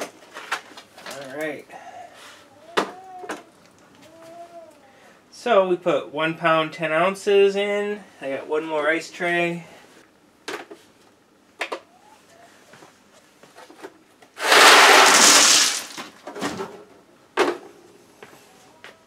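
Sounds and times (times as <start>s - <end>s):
ice cubes clattering: 14.4s - 16.2s
plastic bin clinking: 14.4s - 16.7s.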